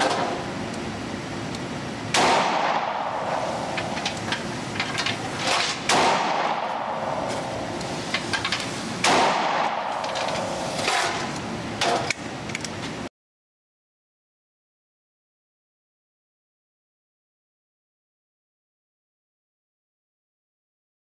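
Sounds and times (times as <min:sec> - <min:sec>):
steady background noise: 0:00.0 - 0:13.1
revolver gunshots: 0:02.1 - 0:04.0, 0:05.8 - 0:07.8, 0:09.0 - 0:10.4.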